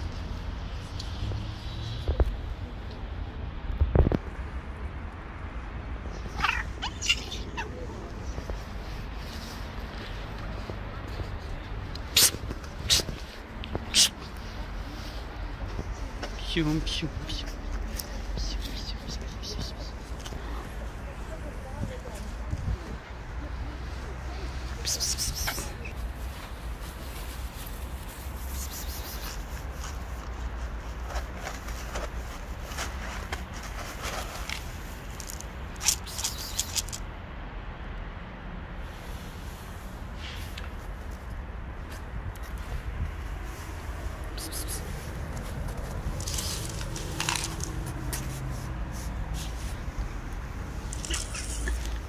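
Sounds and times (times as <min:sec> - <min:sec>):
low outdoor rumble: 0:00.0 - 0:28.5
light footsteps: 0:07.2 - 0:24.8, 0:40.6 - 0:52.0
rustling: 0:25.4 - 0:37.0, 0:39.4 - 0:52.0.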